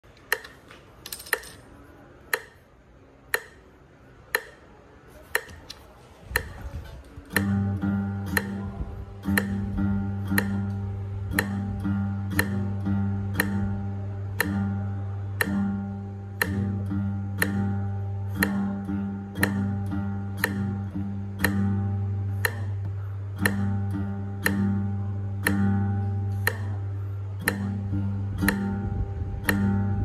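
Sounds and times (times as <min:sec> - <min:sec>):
metronome clicking: 0:00.1 - 0:01.6, 0:02.3 - 0:30.0
acoustic guitar plucked notes: 0:07.2 - 0:30.0.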